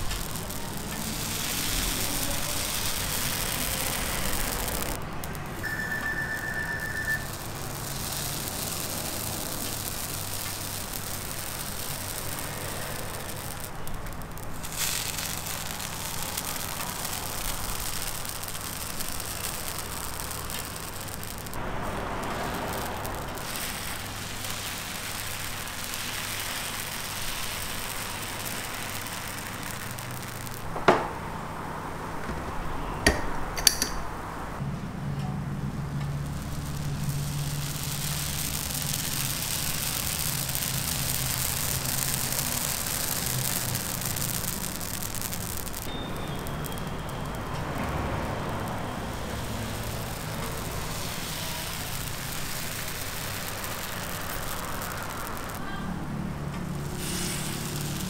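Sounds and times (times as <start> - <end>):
batter sizzling on griddle: 0.0 - 32.2, 35.0 - 58.0
brief high tone: 5.6 - 7.3
sharp tap: 32.3 - 34.0.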